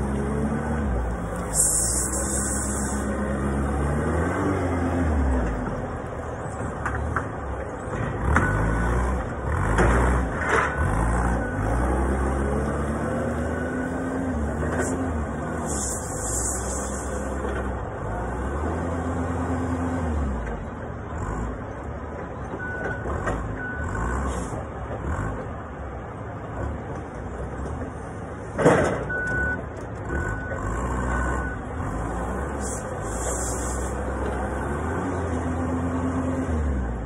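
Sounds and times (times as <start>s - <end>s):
forklift engine running: 0.0s - 37.0s
reversing alarm beeping: 29.1s - 30.6s.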